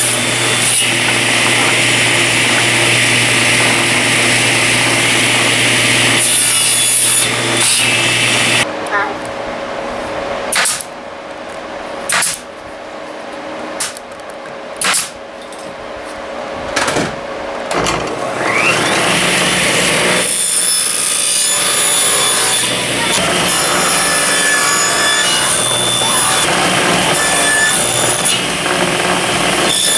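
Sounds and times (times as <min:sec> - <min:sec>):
saw cutting wooden blocks: 0:00.0 - 0:08.7, 0:18.1 - 0:29.9
table saw whining: 0:00.0 - 0:08.7, 0:17.8 - 0:29.9
nail gun firing: 0:10.5 - 0:10.9, 0:12.1 - 0:12.4, 0:13.8 - 0:14.0, 0:14.8 - 0:15.2.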